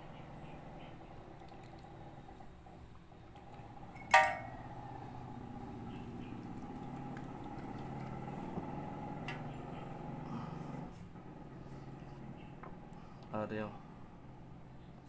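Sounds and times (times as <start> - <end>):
glass clink: 4.0 - 4.6.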